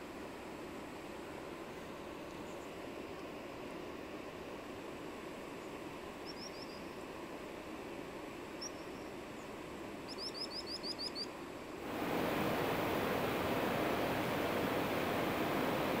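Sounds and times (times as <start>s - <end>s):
outdoor hiss: 0.0s - 16.0s
small bird chirping: 10.1s - 11.3s
loud rushing noise: 11.8s - 16.0s.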